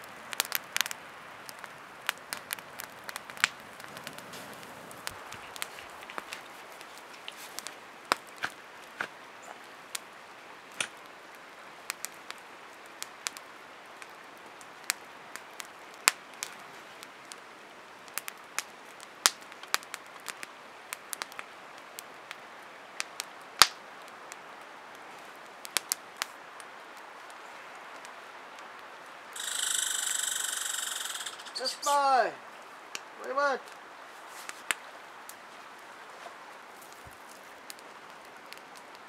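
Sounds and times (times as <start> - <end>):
loud steady hiss: 0.0 - 15.8, 26.2 - 35.8
campfire crackling: 0.0 - 39.0.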